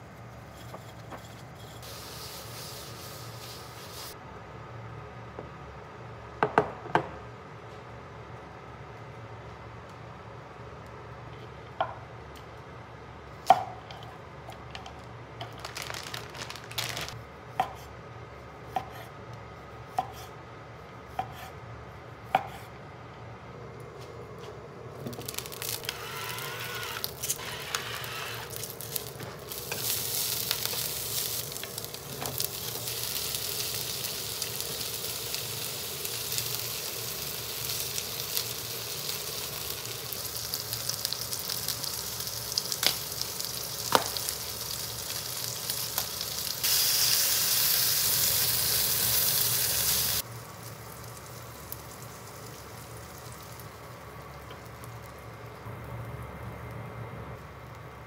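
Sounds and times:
food sizzling in oil: 0:01.8 - 0:04.2, 0:25.2 - 0:55.2.

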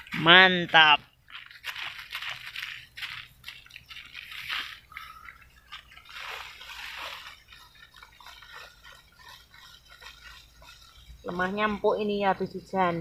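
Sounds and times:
wet leaves rustling: 0:01.2 - 0:12.7
knife scraping wet soil: 0:01.5 - 0:11.8.

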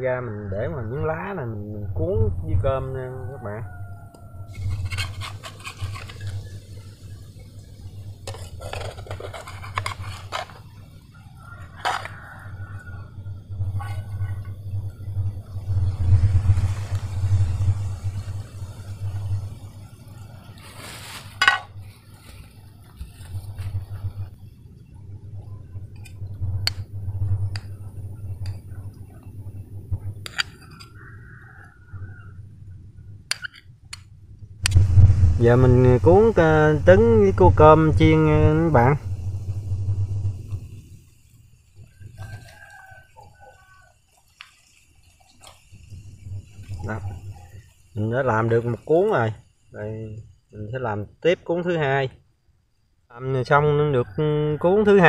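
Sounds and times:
low steady hum: 0:00.0 - 0:54.4
utensil scraping a frying pan: 0:04.5 - 0:06.9, 0:08.2 - 0:10.9, 0:20.6 - 0:22.5
kitchen utensils clinking: 0:21.3 - 0:21.8.

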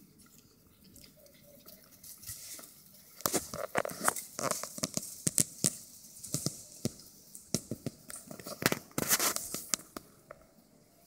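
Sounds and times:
dry grass crackling under puppies: 0:00.0 - 0:10.4.

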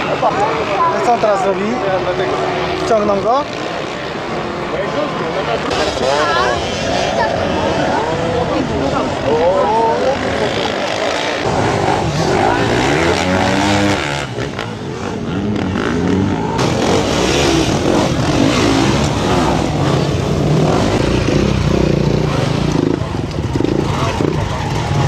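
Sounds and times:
dirt bike engines revving: 0:00.0 - 0:25.0.

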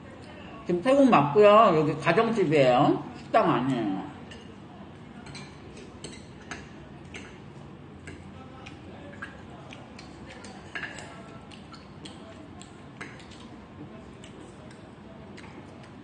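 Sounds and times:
fork tapping on porcelain plate: 0:08.0 - 0:13.4.

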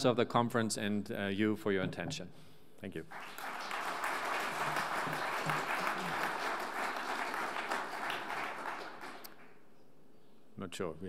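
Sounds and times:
audience applauding: 0:03.1 - 0:09.5.

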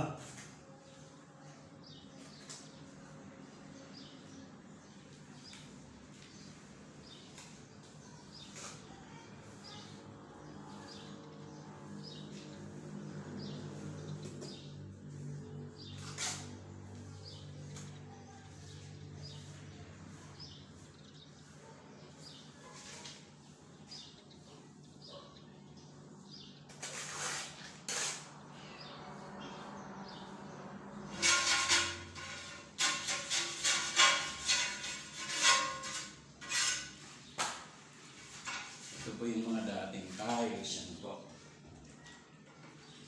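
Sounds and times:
hand tool scraping mortar: 0:15.9 - 0:16.8, 0:26.7 - 0:28.4, 0:31.1 - 0:37.4.

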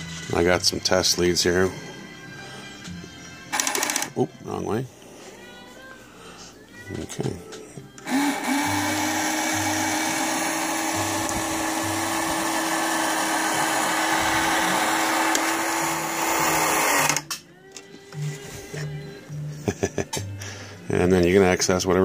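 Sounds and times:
small toy motor whirring: 0:08.0 - 0:17.2.

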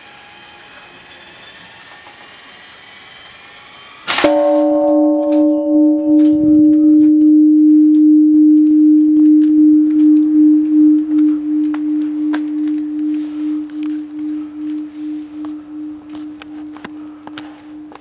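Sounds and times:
temple bell tolling: 0:04.1 - 0:11.2.

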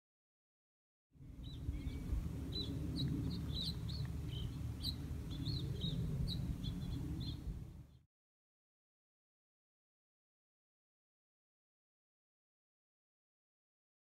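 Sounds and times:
low background rumble: 0:01.2 - 0:08.0
songbirds chirping: 0:01.2 - 0:08.0.

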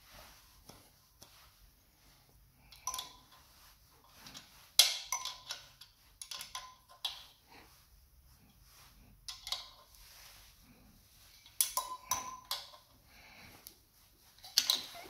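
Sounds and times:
tools clinking on metal: 0:04.8 - 0:07.3.

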